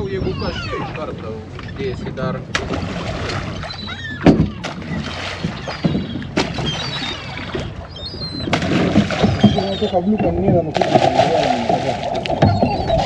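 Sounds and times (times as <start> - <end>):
seagulls crying: 0.0 - 2.0, 3.3 - 10.7, 11.3 - 13.0
boat motor running: 0.0 - 13.0
sharp knocks: 4.2 - 5.1.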